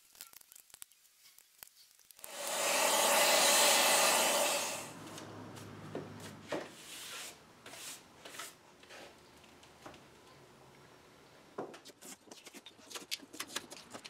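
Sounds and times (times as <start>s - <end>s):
loud rushing noise with hum: 2.3s - 5.0s
hand brush sweeping: 2.3s - 8.6s.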